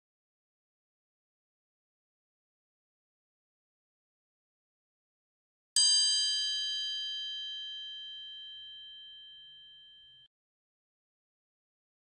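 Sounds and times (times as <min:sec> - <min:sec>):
bell ding: 0:05.8 - 0:10.3.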